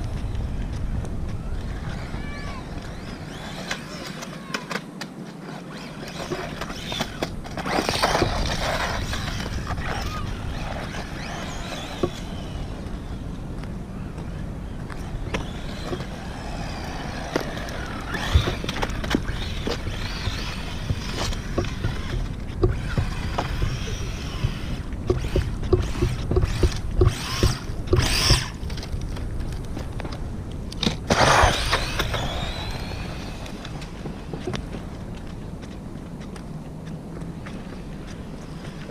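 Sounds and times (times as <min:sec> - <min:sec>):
tyres on asphalt: 0:00.0 - 0:38.9
electric motor whining: 0:05.7 - 0:13.3, 0:15.0 - 0:28.8, 0:31.1 - 0:34.2
toy car knocking and clattering: 0:17.3 - 0:29.3.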